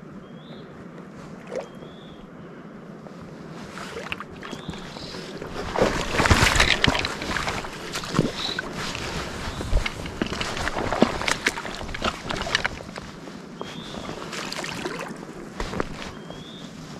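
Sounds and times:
water splashing in shallows: 0:01.4 - 0:02.0, 0:03.7 - 0:13.1, 0:13.7 - 0:16.4.

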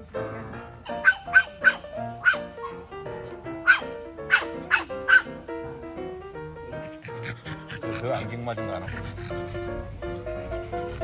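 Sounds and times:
background music: 0:00.0 - 0:11.0
small dog yapping: 0:00.8 - 0:02.9, 0:03.6 - 0:05.4.

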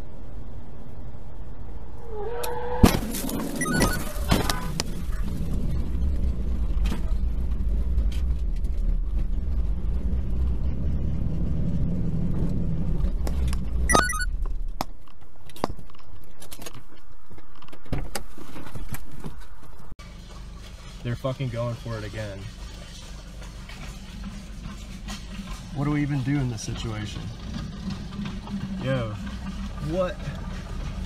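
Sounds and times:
low vehicle rumble: 0:00.0 - 0:31.0.

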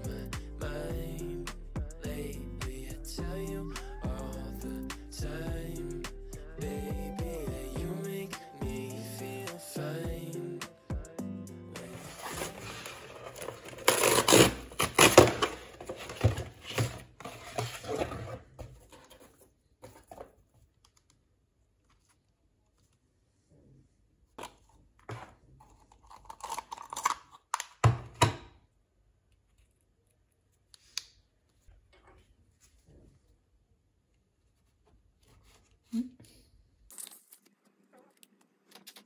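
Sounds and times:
paper mailer tearing: 0:11.8 - 0:18.0.

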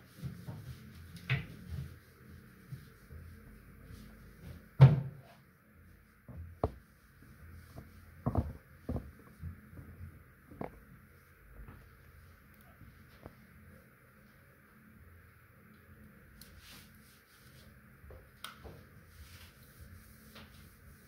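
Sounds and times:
knocks and taps at washbasin: 0:06.3 - 0:06.8, 0:08.2 - 0:09.1.

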